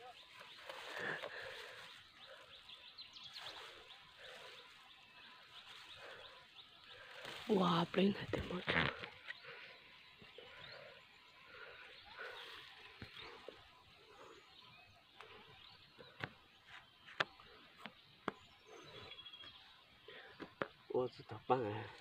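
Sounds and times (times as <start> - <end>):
dry brush rustling: 0.0 - 14.3
faint bird chirps: 0.0 - 21.8.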